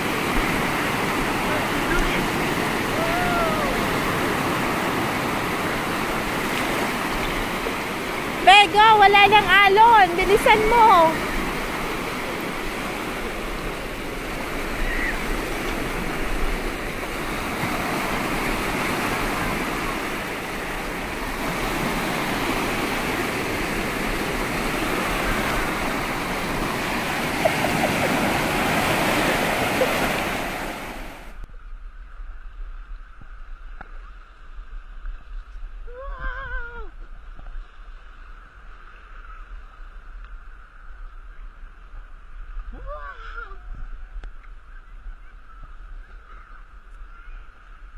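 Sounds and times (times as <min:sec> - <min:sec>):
small waves washing over pebbles: 0:00.0 - 0:31.3.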